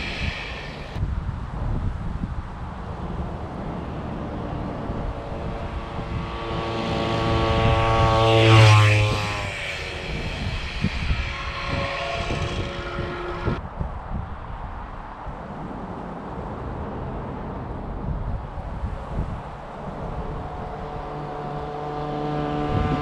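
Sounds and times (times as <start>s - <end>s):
motorized bicycle engine buzzing: 3.6s - 13.6s, 19.9s - 23.0s.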